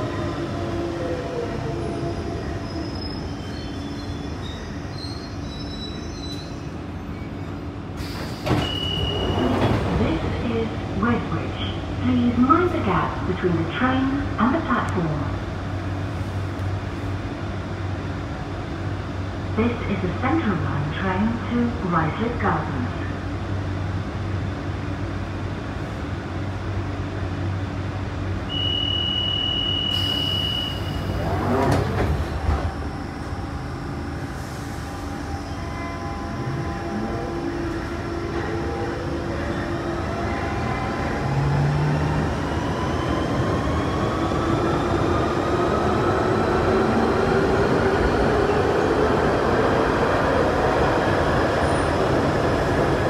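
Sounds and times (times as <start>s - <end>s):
train doors shutting with a knock: 8.1s - 10.0s
door-closing warning tone: 8.3s - 9.8s.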